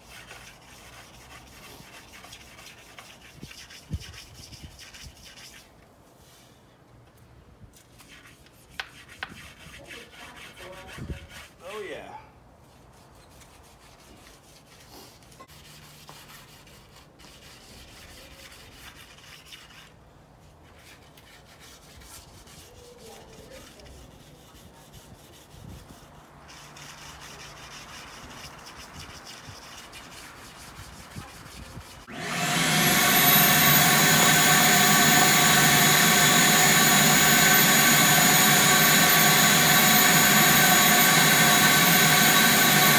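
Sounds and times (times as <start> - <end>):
brush scrubbing and scraping: 0.0 - 6.6, 7.8 - 11.9, 12.6 - 42.9
vacuum cleaner running with whine: 32.1 - 42.9.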